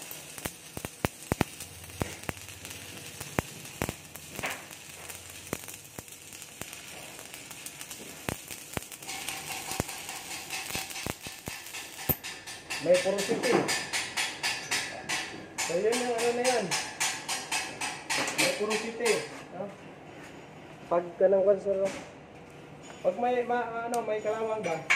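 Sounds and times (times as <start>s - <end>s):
welding arc crackling and popping: 0.0s - 19.3s.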